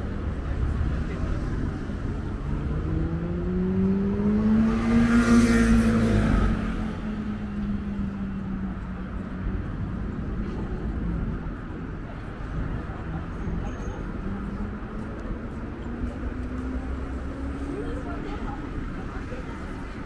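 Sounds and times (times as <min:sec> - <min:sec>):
traffic rumble: 0:00.0 - 0:20.0
vehicle accelerating past: 0:02.4 - 0:08.1.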